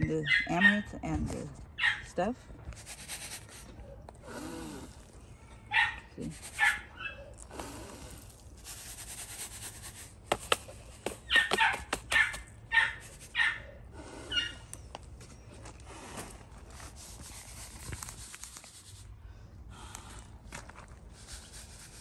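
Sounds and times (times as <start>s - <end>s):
breath blowing across seeds: 2.7s - 5.2s, 6.2s - 6.6s, 7.4s - 11.0s, 15.8s - 22.0s
high-pitched animal cries: 14.3s - 14.6s.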